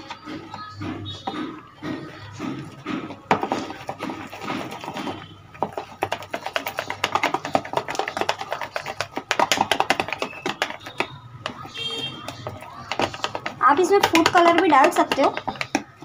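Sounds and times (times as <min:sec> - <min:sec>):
fork beating wet marinade: 0:00.0 - 0:16.0.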